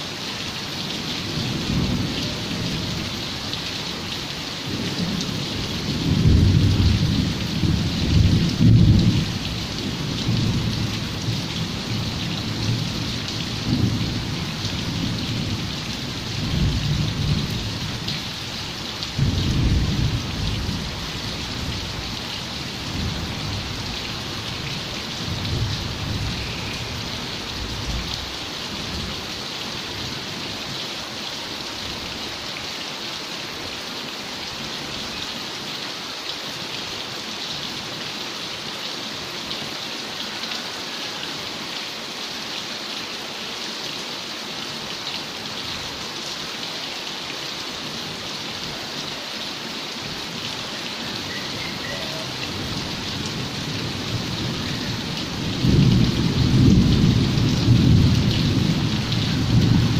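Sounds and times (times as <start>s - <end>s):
heavy rain falling: 0.0s - 59.9s
low rumble of thunder: 4.7s - 18.1s, 19.1s - 22.2s, 52.3s - 59.9s.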